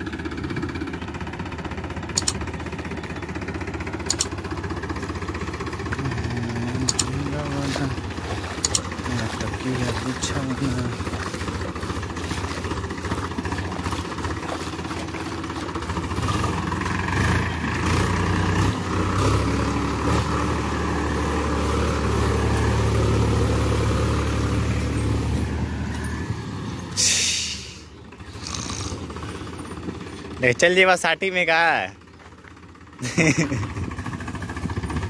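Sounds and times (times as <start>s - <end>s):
tractor diesel engine under load: 0.0s - 35.0s
brief hiss: 27.0s - 27.9s.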